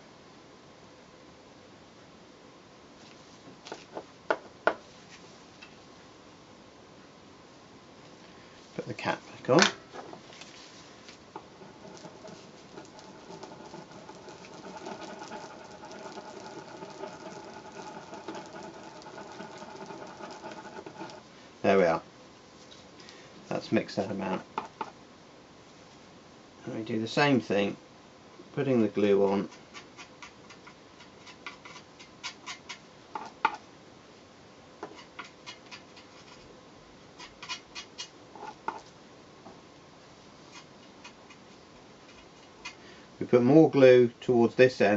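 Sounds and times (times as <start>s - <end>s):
tool scratching glue on paper: 11.4s - 21.2s.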